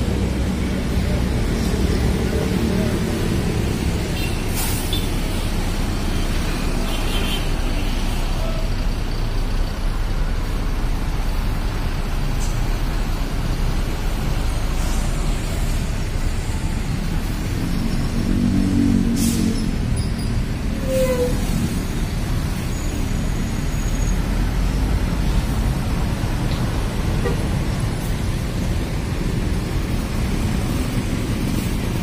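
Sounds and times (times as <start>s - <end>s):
bus diesel engine rumbling: 0.0s - 32.0s
short air hisses: 4.5s - 5.1s, 19.2s - 19.6s.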